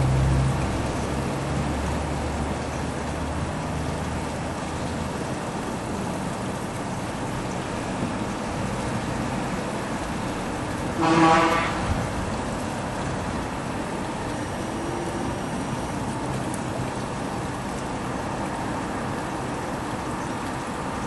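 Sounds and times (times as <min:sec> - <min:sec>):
distant traffic: 0:00.0 - 0:21.0
vehicle horn toot: 0:11.0 - 0:11.9.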